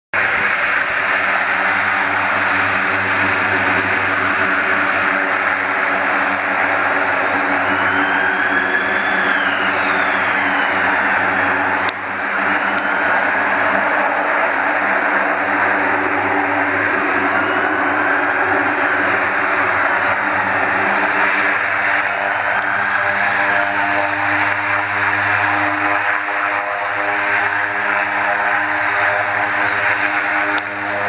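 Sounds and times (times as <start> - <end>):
propeller drone with whining tones: 0.2 - 31.0.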